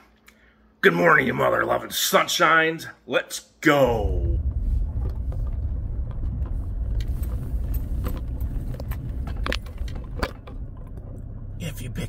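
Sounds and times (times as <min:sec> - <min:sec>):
engine and road rumble: 0:03.8 - 0:12.0
cabin clicks and rattles: 0:04.8 - 0:11.6.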